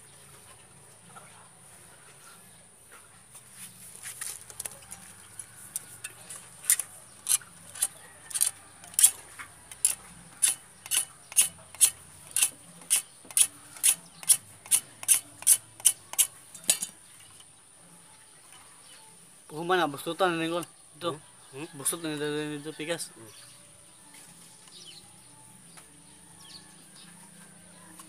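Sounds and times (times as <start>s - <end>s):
scraping strokes on pipe: 5.4s - 16.9s.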